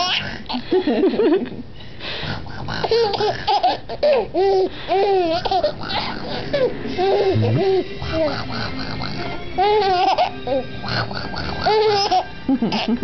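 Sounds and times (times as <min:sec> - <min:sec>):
baby giggling: 0:02.8 - 0:08.5, 0:09.6 - 0:10.6, 0:11.6 - 0:13.0.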